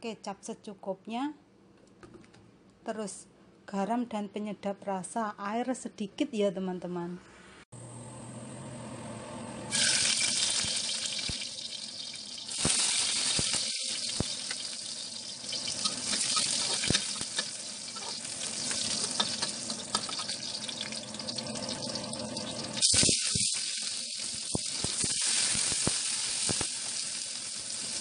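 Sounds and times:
garlic sizzling in oil: 9.7s - 28.0s
metal spoon stirring: 15.6s - 21.0s.

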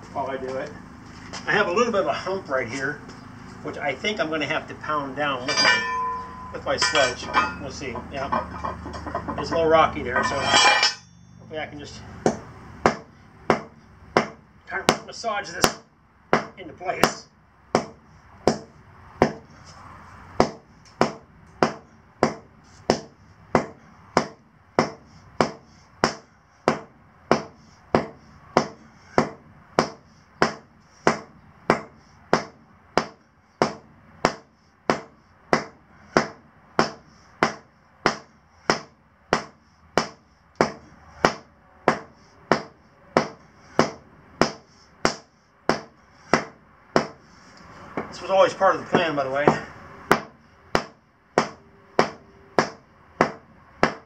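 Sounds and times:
sledge hammer striking asphalt: 12.2s - 19.5s, 20.4s - 47.2s, 48.9s - 54.0s.

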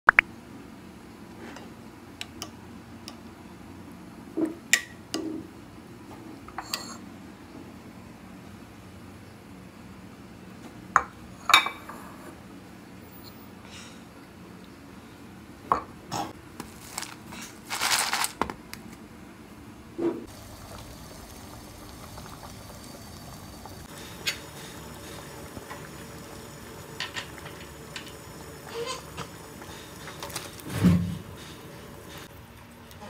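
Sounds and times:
pot of water boiling: 20.3s - 33.0s.

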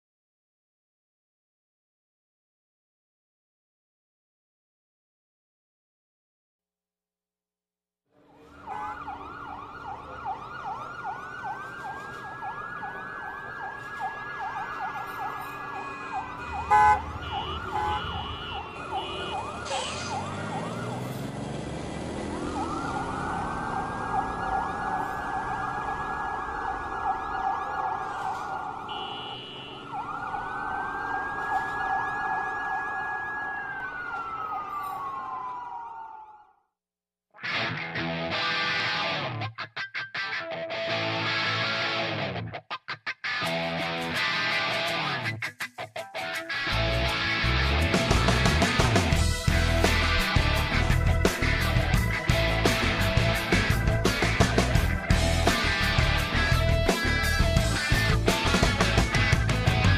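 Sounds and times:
emergency sirens wailing: 8.2s - 36.6s, 46.6s - 59.9s.

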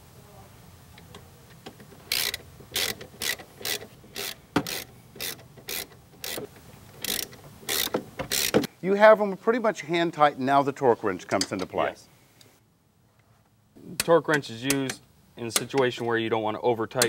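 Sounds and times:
ratchet wrench clicking: 2.0s - 8.7s.

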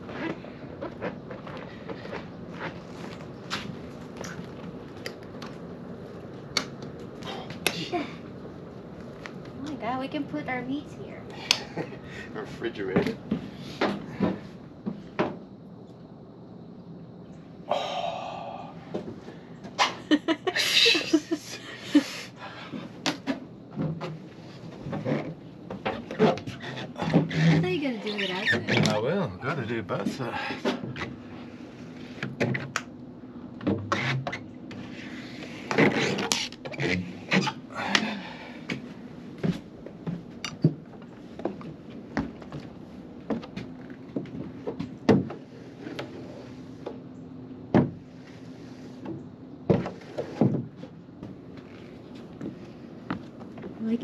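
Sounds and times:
low steady hum: 0.0s - 54.0s
squeegee squeaks: 25.9s - 29.0s
squeegee rubbing on window: 33.9s - 37.6s, 45.4s - 46.9s, 48.0s - 49.2s, 49.8s - 50.8s.

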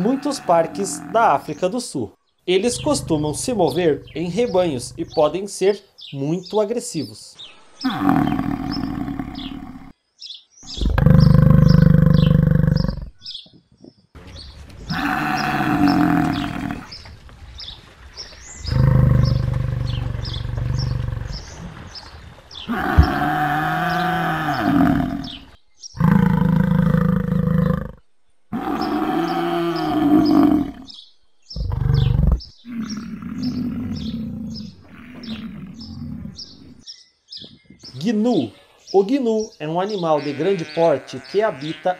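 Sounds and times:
buffalo bellowing: 0.0s - 1.6s, 14.9s - 16.9s, 18.6s - 21.5s, 22.6s - 27.9s, 28.5s - 30.9s, 31.6s - 36.8s
birds chirping: 0.0s - 41.9s.

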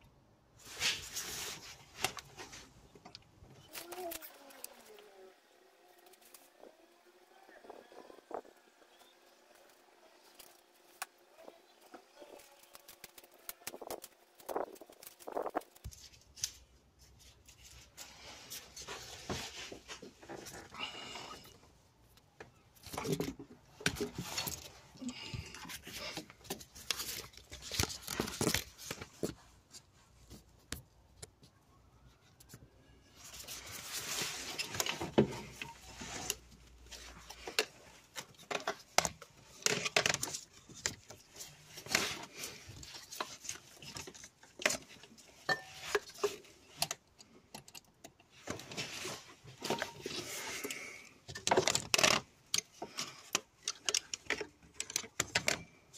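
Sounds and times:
tools and parts clinking: 42.9s - 48.8s.

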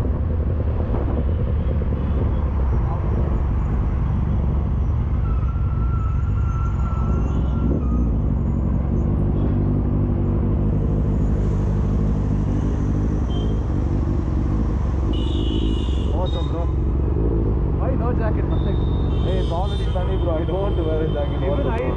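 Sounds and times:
wind rumble on microphone: 0.0s - 8.6s.

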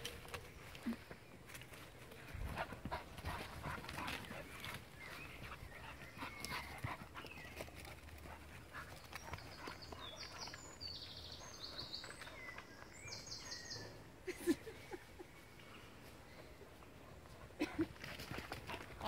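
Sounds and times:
dogs panting: 2.2s - 13.7s.

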